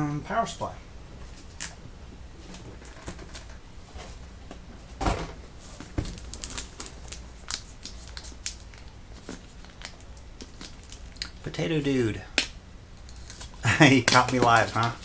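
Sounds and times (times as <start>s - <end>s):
cardboard packaging crinkling: 5.7s - 11.4s, 13.0s - 15.0s.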